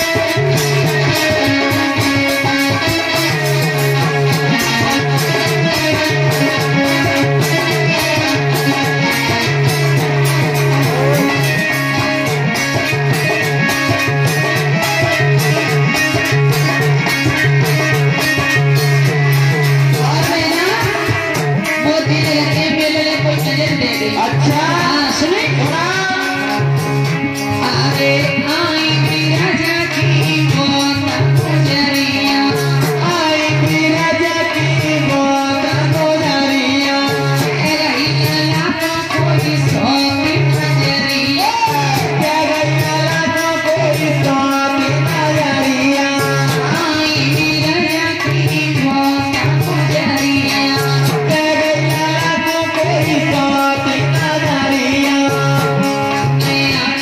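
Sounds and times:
repeating drum beat: 0.0s - 22.4s
band with steady repeating beat: 0.0s - 57.0s
woman singing into a microphone: 0.0s - 57.0s.

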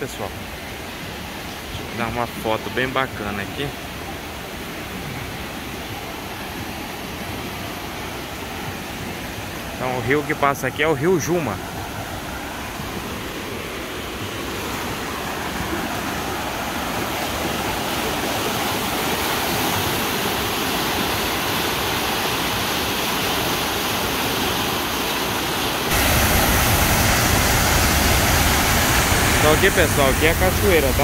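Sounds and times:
river rushing over rapids: 0.0s - 31.0s
waterfall pouring over rock: 25.9s - 31.0s.

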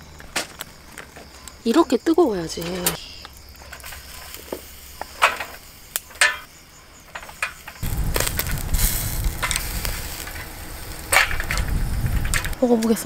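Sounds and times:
beef sizzling on grill: 3.4s - 12.9s
chopsticks tapping grate: 3.7s - 6.5s, 7.1s - 12.9s
metal tongs clicking on grill grate: 7.2s - 12.9s.

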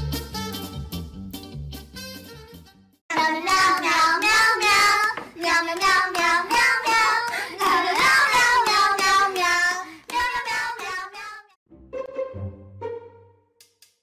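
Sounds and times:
child-like voice singing: 3.1s - 11.6s.

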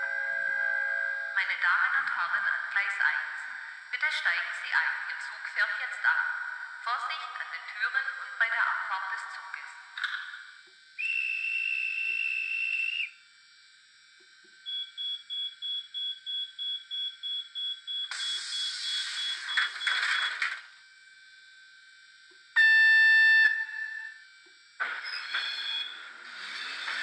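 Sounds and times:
railcar horn chord: 0.0s - 1.4s
short whistle blast: 11.0s - 13.1s
rapid warning beeps: 14.6s - 20.4s
air hiss: 18.1s - 19.5s.

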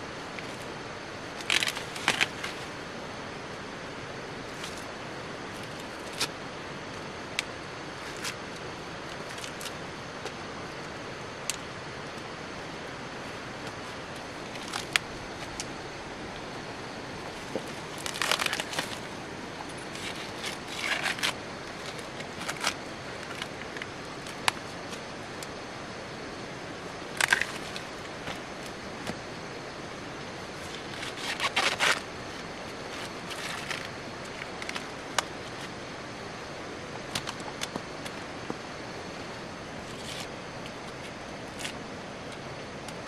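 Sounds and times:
outdoor background hiss: 0.0s - 43.0s
hands rustling dry material: 13.3s - 25.0s.

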